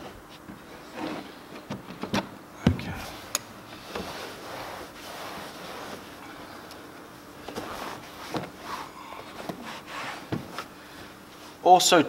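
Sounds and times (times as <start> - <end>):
towels rustling: 3.8 - 6.6, 7.4 - 11.6.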